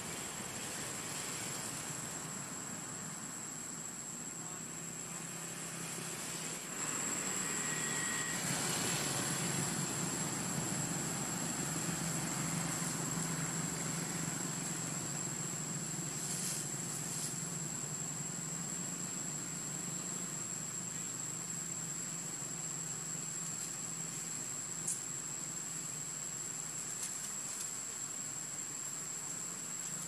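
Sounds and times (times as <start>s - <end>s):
outdoor background noise: 0.0s - 30.0s
high-pitched whine: 6.2s - 15.4s
high rustles: 16.1s - 17.4s.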